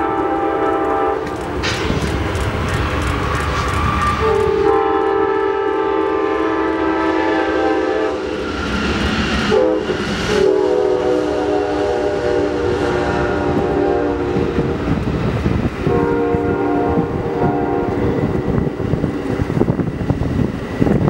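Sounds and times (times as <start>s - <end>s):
locomotive air horn blasts: 0.0s - 1.6s, 3.8s - 8.4s, 9.4s - 14.8s, 15.8s - 18.2s
train wheels rumbling on rails: 0.0s - 21.0s.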